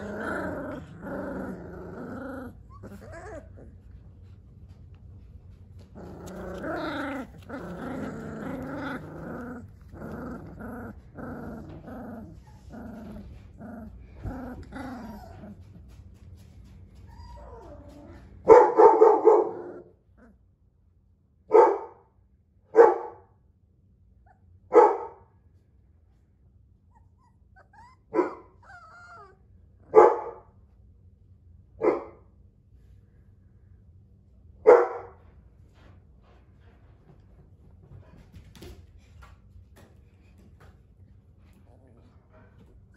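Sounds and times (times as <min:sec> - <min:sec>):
puppies growling in play: 0:00.0 - 0:18.5, 0:19.3 - 0:20.8, 0:26.9 - 0:29.9, 0:37.8 - 0:42.9
puppy yelp: 0:17.1 - 0:18.0, 0:26.9 - 0:29.4.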